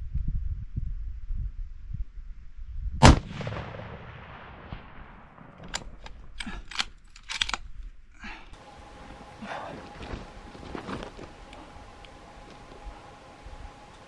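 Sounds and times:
rifle shot echoing: 3.0 - 6.0
rifle bolt metallic clicks: 5.6 - 7.7.

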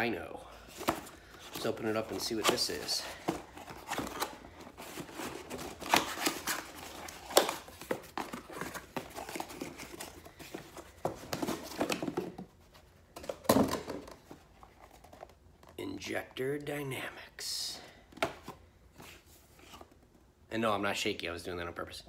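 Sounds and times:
cardboard packing rustling: 0.5 - 15.8.

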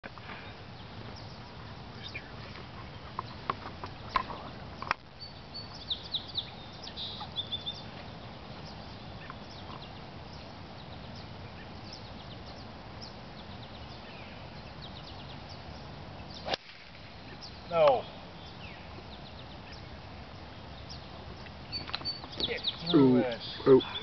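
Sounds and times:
low background rush: 0.0 - 24.0
birds chirping: 0.1 - 24.0.

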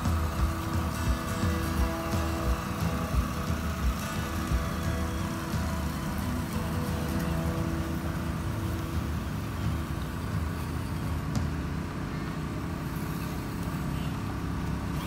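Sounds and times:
toy car motor whirring: 0.0 - 11.2.

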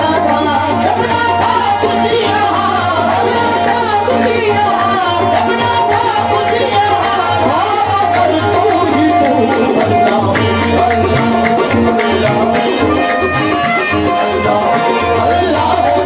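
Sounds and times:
hand drum beat: 0.0 - 16.0
harmonium melody: 0.0 - 16.0.

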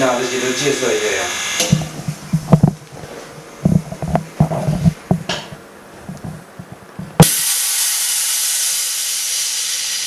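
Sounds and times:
air hissing steadily: 0.0 - 10.0
valve clicking: 1.3 - 1.9, 7.2 - 10.0.

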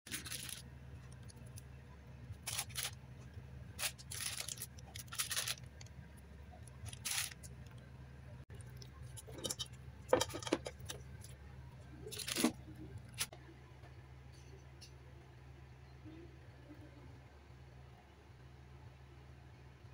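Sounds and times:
plastic bag crinkling: 0.1 - 1.6, 2.4 - 3.0, 3.8 - 5.9, 6.8 - 7.6, 12.0 - 13.3
steady low hum: 0.1 - 19.9.

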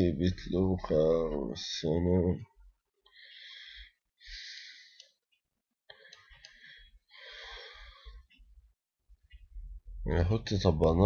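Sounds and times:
faint breathing: 3.0 - 5.2, 5.9 - 8.5
soft clicks: 4.9 - 6.7.

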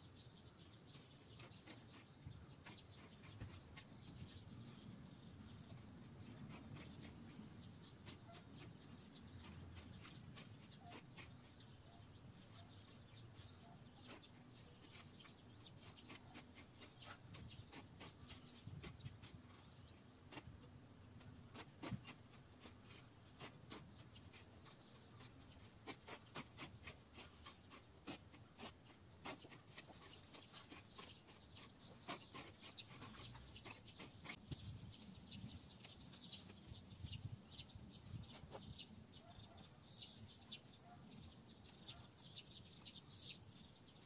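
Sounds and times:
hoe chopping soil: 25.6 - 34.6.

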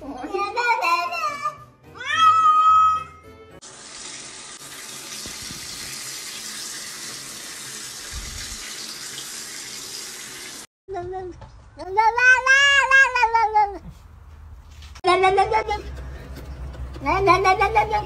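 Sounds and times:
cat crying: 2.0 - 3.2, 11.8 - 13.9
shower spraying water: 3.6 - 10.7.

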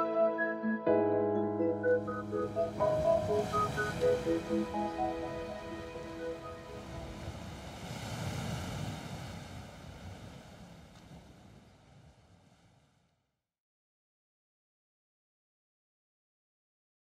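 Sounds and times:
ocean surf washing on shore: 1.8 - 12.9.

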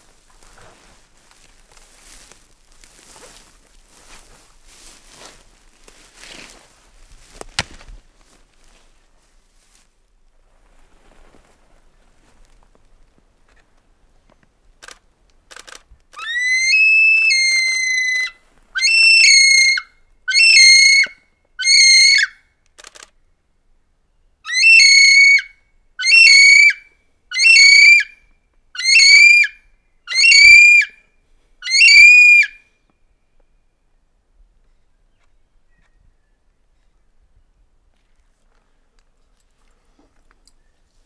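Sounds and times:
kiwi shrill whistles: 16.2 - 22.3, 24.5 - 26.8, 27.4 - 28.1, 28.8 - 31.0, 31.6 - 32.6.

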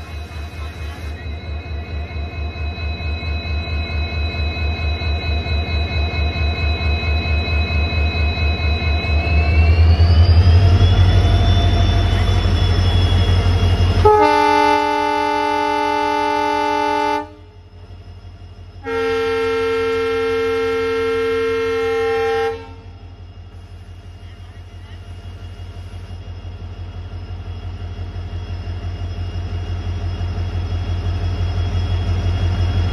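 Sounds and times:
locomotive diesel engine throbbing: 0.0 - 32.9
locomotive air horn blasts: 14.0 - 17.5, 18.8 - 22.9.

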